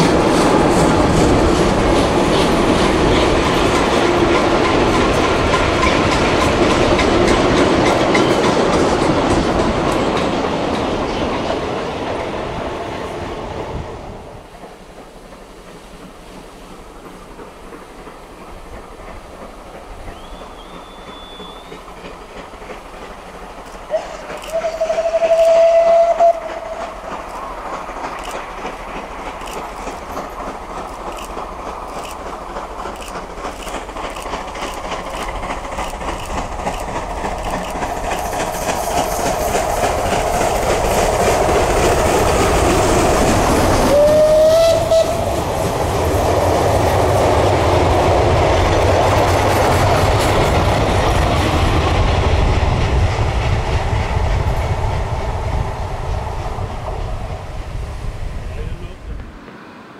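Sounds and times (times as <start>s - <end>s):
steam locomotive passing: 0.0s - 59.9s
steam whistle: 20.1s - 21.9s, 23.9s - 27.0s, 43.8s - 45.3s.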